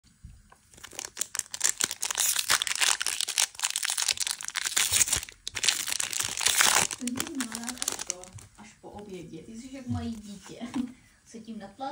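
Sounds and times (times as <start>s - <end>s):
foil wrapper crinkling: 0.6s - 8.6s.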